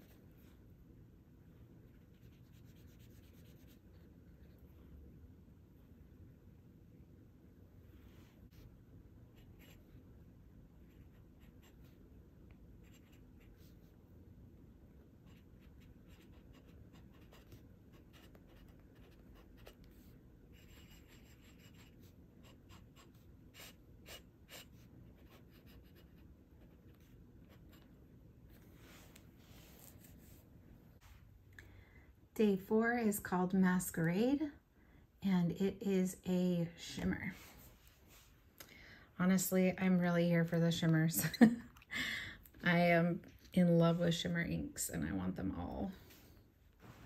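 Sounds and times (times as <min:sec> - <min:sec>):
low room hum: 0:00.0 - 0:47.0
pen nib scratching paper: 0:02.1 - 0:03.8, 0:15.2 - 0:27.8.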